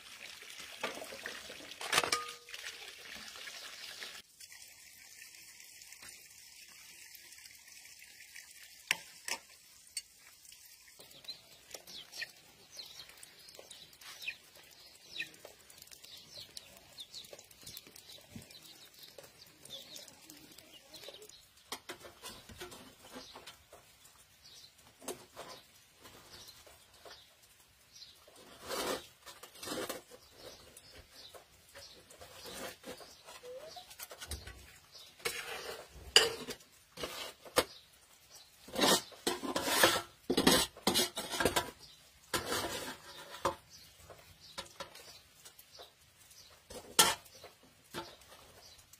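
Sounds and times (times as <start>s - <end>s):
metal ladle clinking on a pot: 1.9s - 2.5s.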